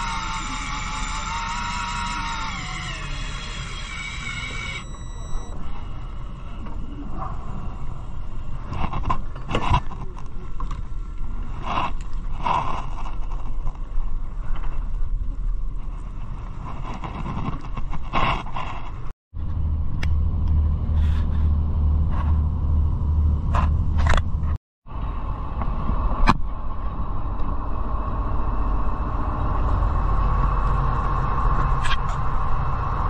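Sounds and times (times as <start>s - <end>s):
electric fishing reel motor whining: 0.0s - 5.5s
low rumble: 5.0s - 33.0s.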